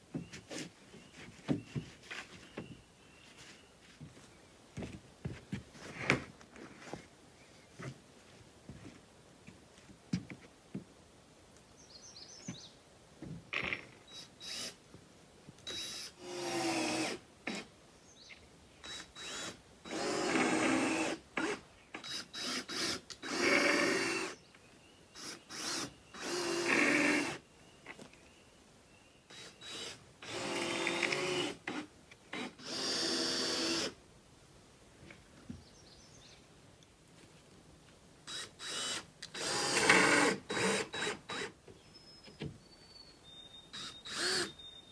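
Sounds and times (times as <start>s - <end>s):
drill motor whining: 32.4s - 33.9s, 38.3s - 41.5s, 43.7s - 44.6s.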